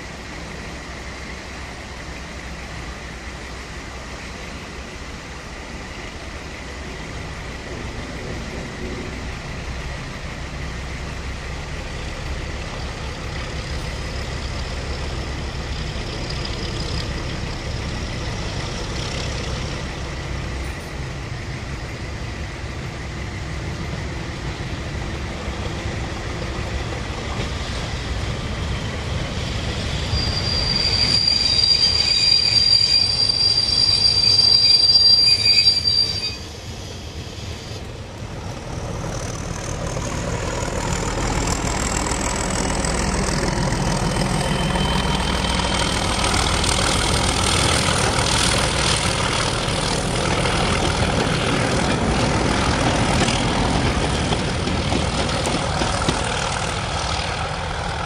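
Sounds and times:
diesel locomotive engine: 0.0 - 58.0
wheels squealing on track: 29.4 - 37.8, 40.6 - 58.0
thin whistle rising in pitch: 29.9 - 37.8.

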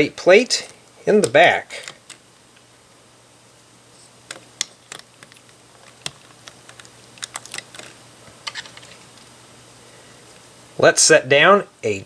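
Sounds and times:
plastic bricks clicking: 4.3 - 8.9.

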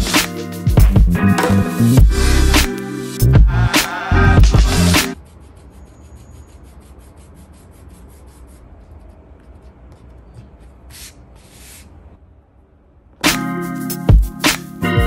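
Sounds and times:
eraser rubbing on paper: 5.1 - 12.0.

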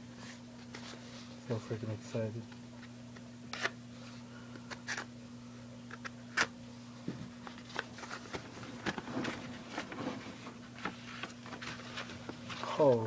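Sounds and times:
steady low hum: 0.0 - 13.0
paper crinkling and rustling: 7.4 - 13.0.

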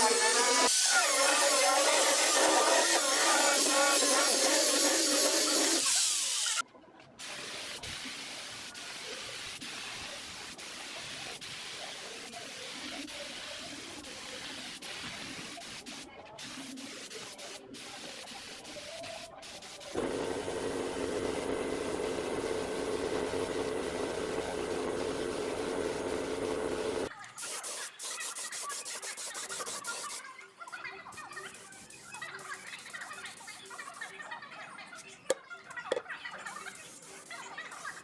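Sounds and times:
air spray gun hissing: 0.0 - 6.6, 17.0 - 30.2
machine hum with held tones: 20.0 - 27.1
orbital sander on wood: 20.0 - 27.1.

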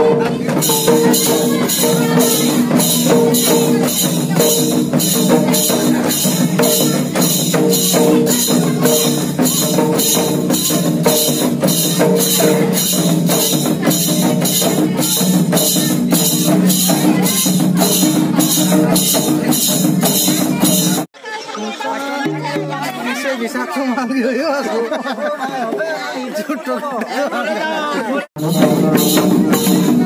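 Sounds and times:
folk drums beating: 0.0 - 21.1, 22.2 - 23.3, 28.4 - 30.0
held melody line: 0.0 - 21.1.

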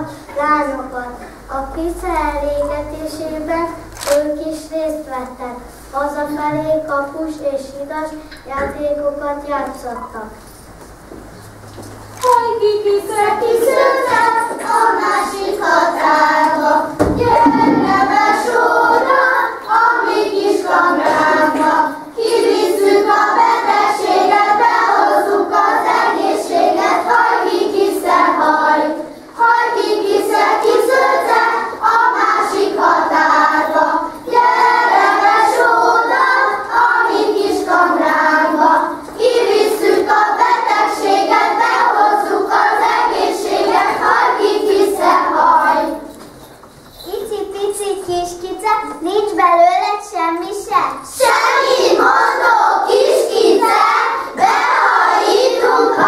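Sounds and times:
children singing folk song: 0.0 - 9.8, 12.2 - 56.0.

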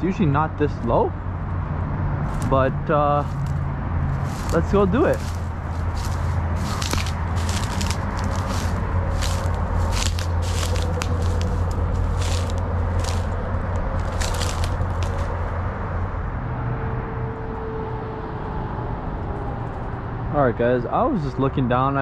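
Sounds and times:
steady low rumble: 2.2 - 16.4
footsteps walking: 3.2 - 15.6.

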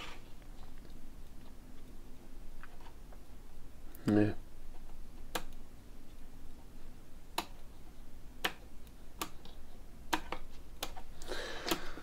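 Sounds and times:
sharp plastic clicks: 4.8 - 5.6.

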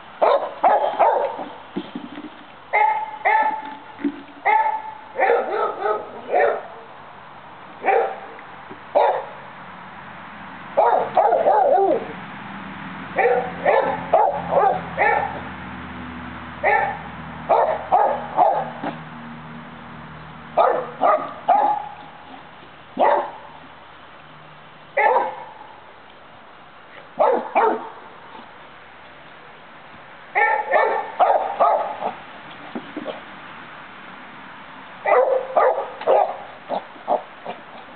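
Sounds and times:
dog barking: 0.2 - 1.5, 2.7 - 3.6, 4.5 - 6.9, 7.8 - 8.3, 9.0 - 9.4, 10.8 - 12.1, 13.2 - 15.4, 16.6 - 19.0, 20.6 - 22.0, 23.0 - 23.5, 25.0 - 25.6, 27.2 - 28.0, 30.4 - 32.2, 35.0 - 37.3.

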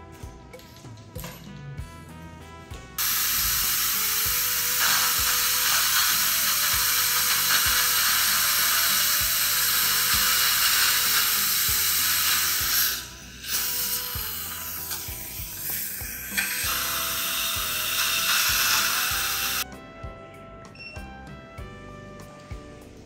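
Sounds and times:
background music with beat: 0.0 - 8.3, 9.2 - 23.0
dental drill hissing: 3.0 - 19.6.

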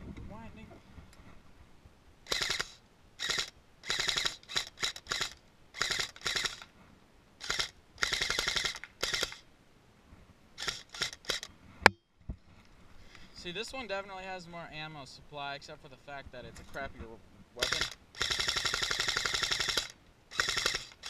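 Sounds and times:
airsoft gun firing bursts: 2.3 - 6.7, 7.4 - 9.4, 10.6 - 11.5, 17.6 - 21.0.

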